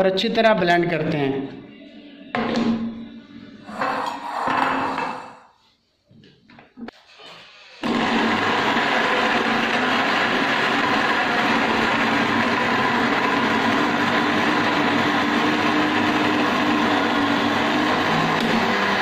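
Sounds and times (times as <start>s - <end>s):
blender motor running: 7.6s - 19.0s.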